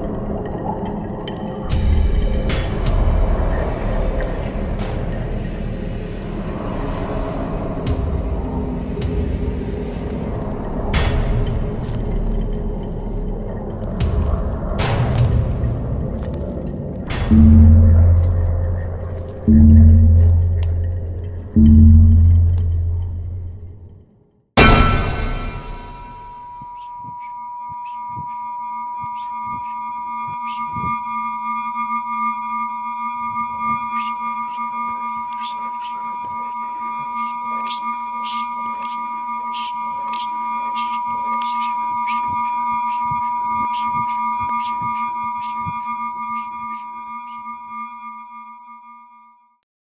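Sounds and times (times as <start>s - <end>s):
irregular electronic clicks: 17.2s - 23.6s
held electronic tone chord: 17.3s - 23.8s.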